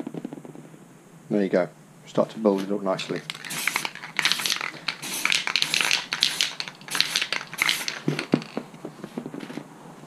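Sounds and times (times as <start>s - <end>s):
spray can hissing in bursts: 2.6s - 8.6s.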